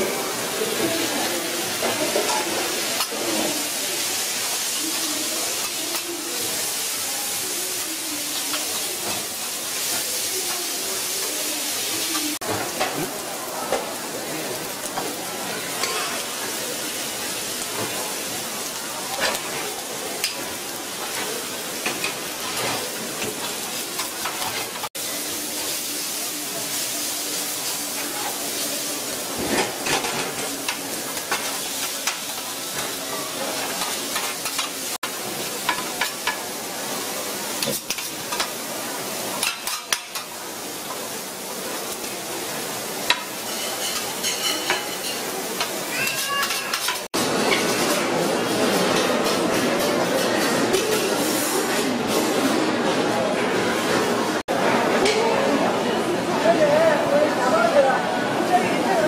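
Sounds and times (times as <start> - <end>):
food sizzling on a griddle: 0.0 - 54.4
steel spatulas scraping and clacking: 43.1 - 47.8.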